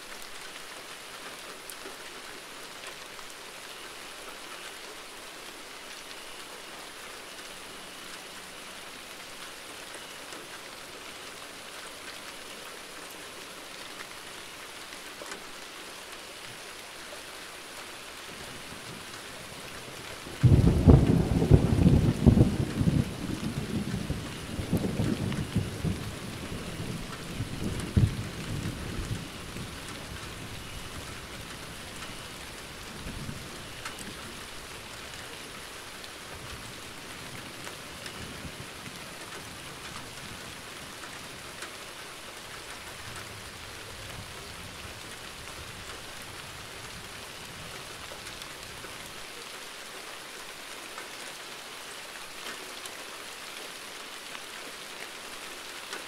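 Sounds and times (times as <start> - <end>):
steady falling rain: 0.0 - 56.0
thunder rumbling: 20.3 - 29.8.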